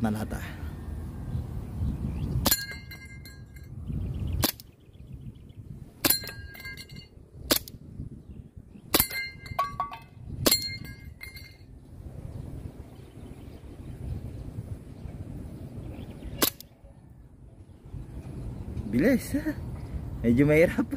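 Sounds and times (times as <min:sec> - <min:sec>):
metallic ringing of steel target: 0:02.4 - 0:03.8, 0:06.0 - 0:07.6, 0:08.9 - 0:11.7
airsoft pistol shots popping: 0:04.4 - 0:04.7, 0:07.5 - 0:07.8, 0:16.4 - 0:16.7.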